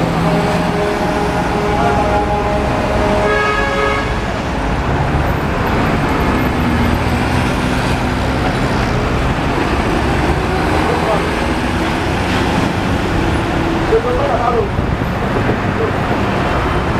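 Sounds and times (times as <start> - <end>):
cars driving past: 0.0 - 16.9
vehicle horn honking: 0.2 - 4.3.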